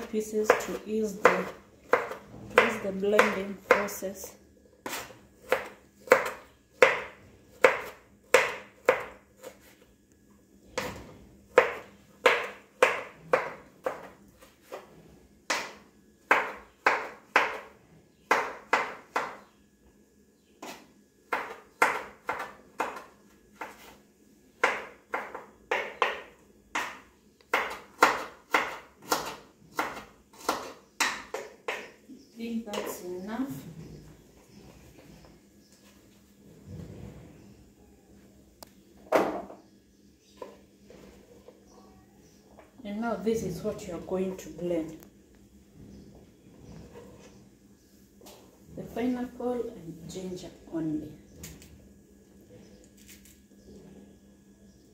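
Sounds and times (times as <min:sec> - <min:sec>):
knife chopping on wooden board: 0:00.5 - 0:03.9, 0:04.8 - 0:09.7, 0:10.8 - 0:14.8, 0:15.5 - 0:17.7, 0:18.3 - 0:19.4, 0:20.6 - 0:24.0, 0:24.6 - 0:31.9.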